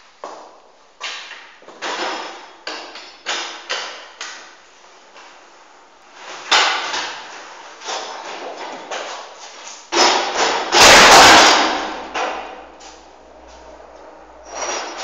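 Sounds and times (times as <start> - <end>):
bike banging on concrete floor: 0.2 - 4.6, 6.3 - 12.8.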